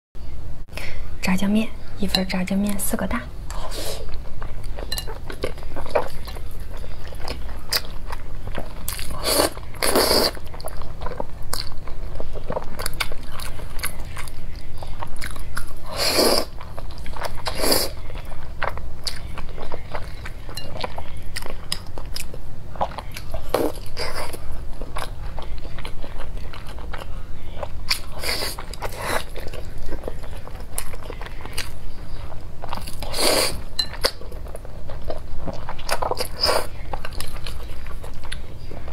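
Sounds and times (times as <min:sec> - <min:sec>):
chewing with wet mouth clicks: 0:03.5 - 0:15.8, 0:16.4 - 0:38.9
slurping noodles: 0:09.2 - 0:10.4.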